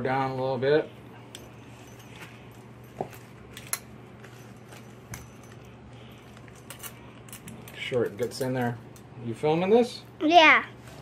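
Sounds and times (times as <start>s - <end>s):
low steady hum: 0.0s - 11.0s
metal parts clinking: 1.3s - 9.1s.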